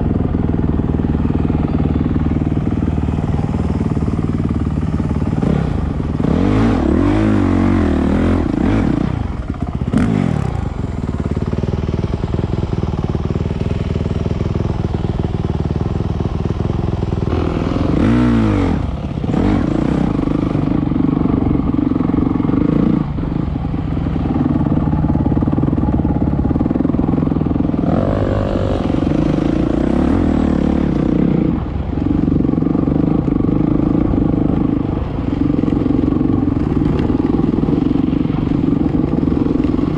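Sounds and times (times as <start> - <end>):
dirt bike engine revving: 1.6 - 11.6, 17.1 - 23.3, 24.3 - 31.8.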